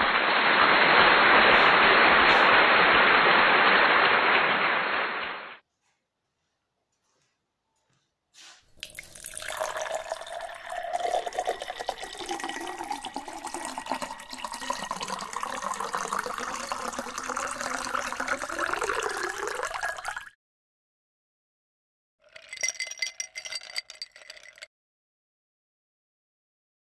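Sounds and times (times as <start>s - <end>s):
rushing watery noise: 0.0s - 5.6s.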